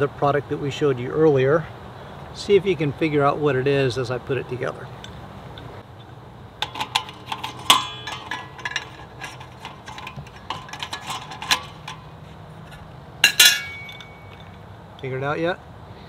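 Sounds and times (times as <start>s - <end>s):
ringing metallic clank: 6.6s - 12.2s, 13.2s - 14.7s
metal rails clicking and tapping: 6.6s - 15.1s.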